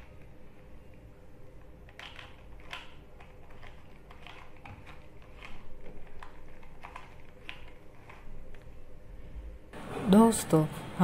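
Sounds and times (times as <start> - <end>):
puzzle cube plastic clicks: 1.8 - 8.6.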